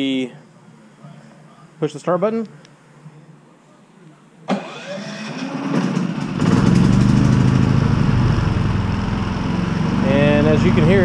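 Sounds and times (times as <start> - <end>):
generator engine running: 4.7 - 11.0.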